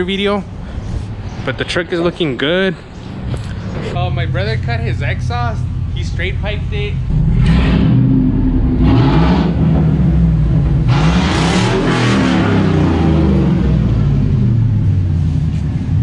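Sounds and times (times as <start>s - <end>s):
pickup truck engine revving: 4.1s - 15.2s.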